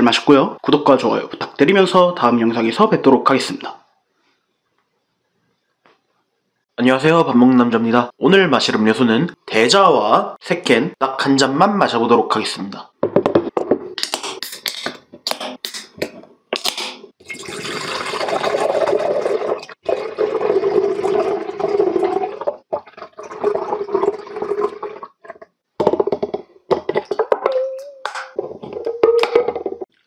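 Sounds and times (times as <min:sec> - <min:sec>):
milk tea pouring into glass mug: 0:17.3 - 0:19.2.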